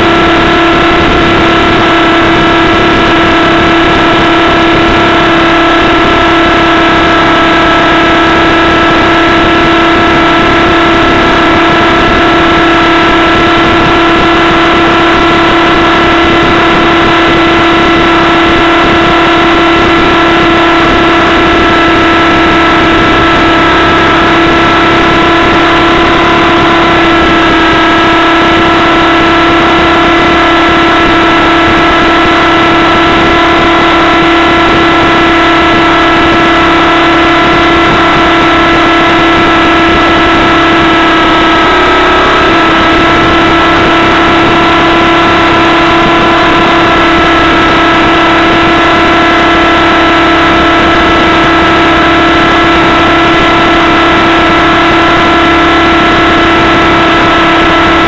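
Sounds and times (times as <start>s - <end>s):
model helicopter engine and rotors: 0.0s - 58.0s.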